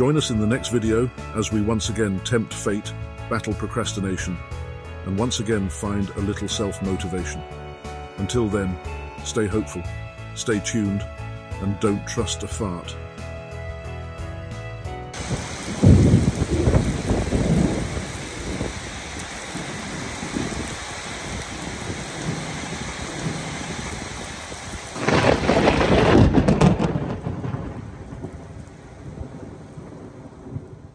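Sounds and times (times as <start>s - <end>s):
loud low rumbles: 15.2s - 20.8s
heavy rain falling: 15.2s - 30.9s.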